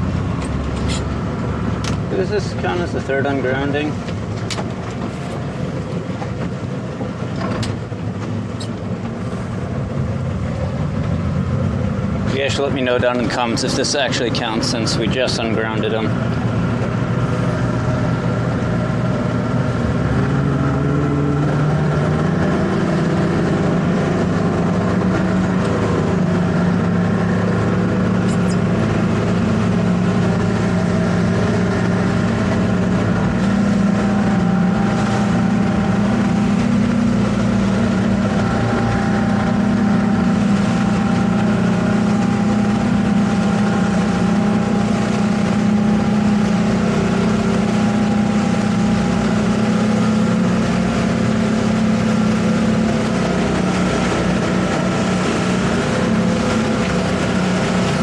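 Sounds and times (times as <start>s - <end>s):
outboard engine running: 0.0s - 58.0s.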